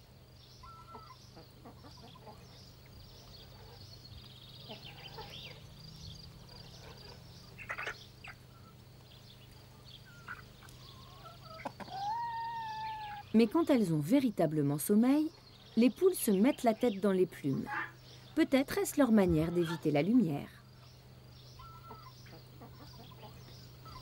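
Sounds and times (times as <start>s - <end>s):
chickens clucking: 0.6s - 13.7s, 21.5s - 24.0s
chicken call: 10.2s - 13.3s, 21.6s - 24.0s.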